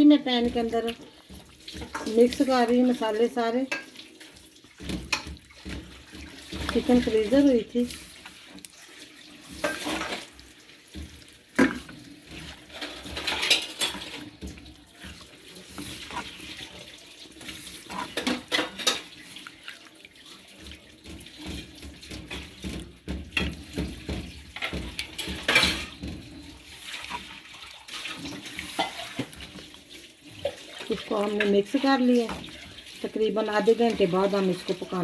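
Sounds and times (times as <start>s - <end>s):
spatula squelching in marinade: 0.0s - 35.0s
spatula knocking on pan: 21.0s - 26.5s.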